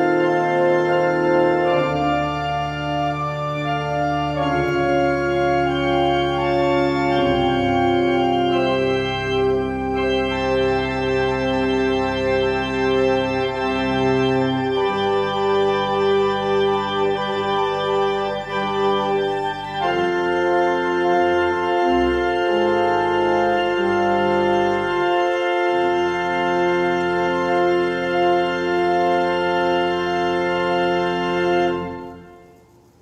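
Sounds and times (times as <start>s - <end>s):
organ playing slow chords: 0.0s - 33.0s.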